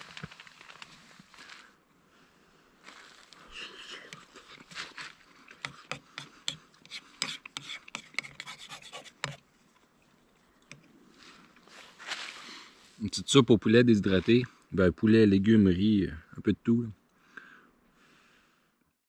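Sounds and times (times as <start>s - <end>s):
spork scraping metal pot: 5.5s - 9.4s.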